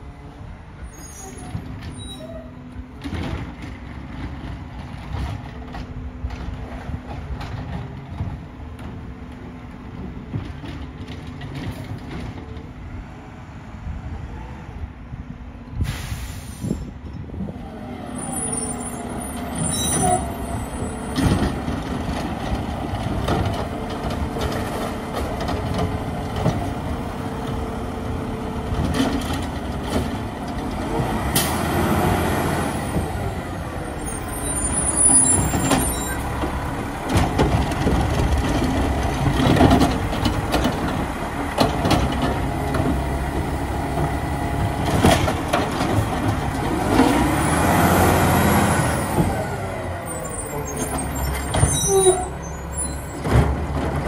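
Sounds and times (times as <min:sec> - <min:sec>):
air brake hiss: 0:15.8 - 0:16.9.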